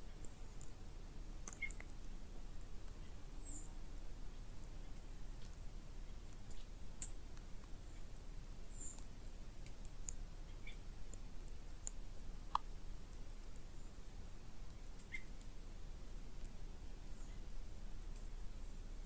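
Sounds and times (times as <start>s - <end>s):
faint clicks and ticks: 0.1s - 0.8s, 4.8s - 8.0s, 8.8s - 13.8s
high bird chirps: 15.1s - 15.3s.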